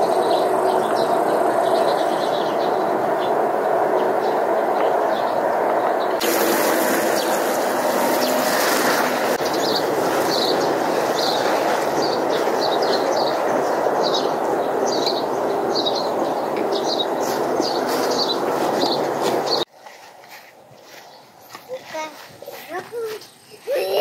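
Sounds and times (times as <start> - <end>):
steady rushing background noise: 0.0 - 19.7
water showering onto leaves: 6.2 - 13.4
small bird chirping: 9.4 - 19.6.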